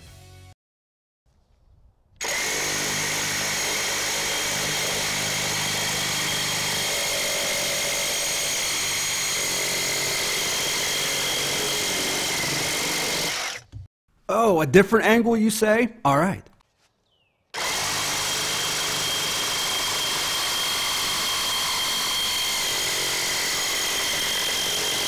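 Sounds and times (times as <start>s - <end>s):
reciprocating saw cutting steel: 2.2s - 13.7s, 17.6s - 25.0s.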